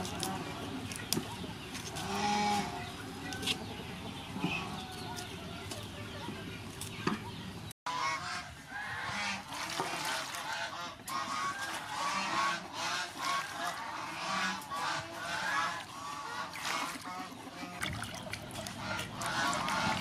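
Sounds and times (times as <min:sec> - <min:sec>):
geese honking: 0:01.9 - 0:03.5, 0:07.9 - 0:17.8, 0:18.6 - 0:20.0
water splashing in metal basin: 0:09.4 - 0:12.4, 0:15.5 - 0:20.0.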